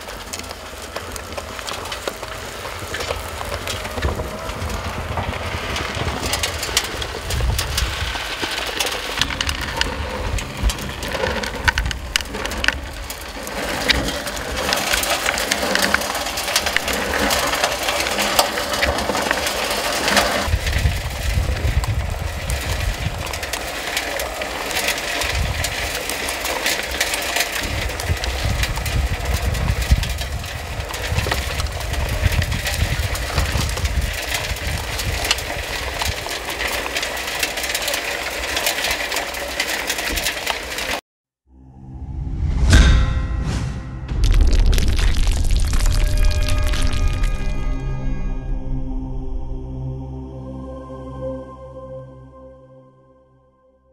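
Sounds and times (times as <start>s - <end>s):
uneven low rumble: 0.0s - 26.1s, 41.5s - 52.6s
stones rattling in rotating drum: 0.0s - 41.0s, 44.2s - 47.4s.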